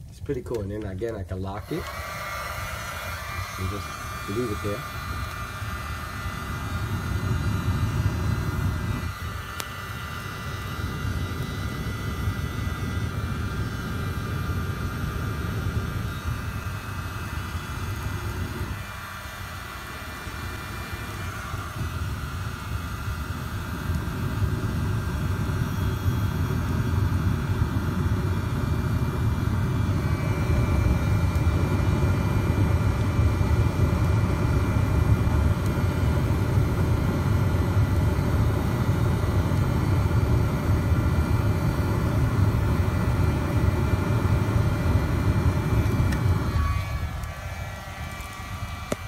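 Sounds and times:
torch and blower roaring: 0.0s - 49.0s.

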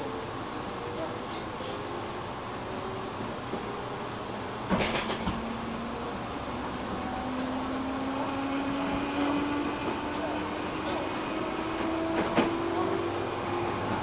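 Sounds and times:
clunk with rattle: 4.7s - 5.5s
train motor hum rising: 5.2s - 14.0s.

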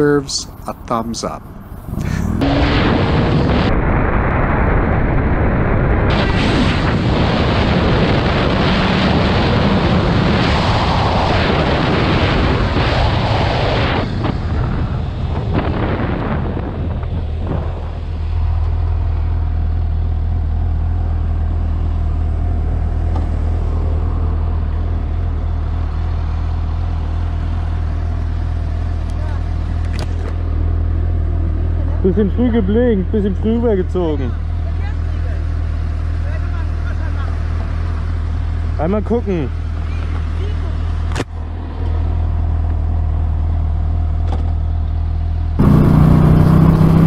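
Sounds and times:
wind rush on microphone: 1.4s - 18.6s
motorcycle engine running: 17.1s - 47.0s.

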